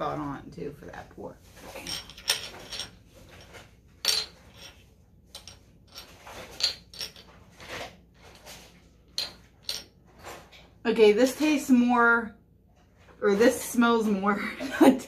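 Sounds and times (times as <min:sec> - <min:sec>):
glass bottles clinking: 0:01.8 - 0:07.4.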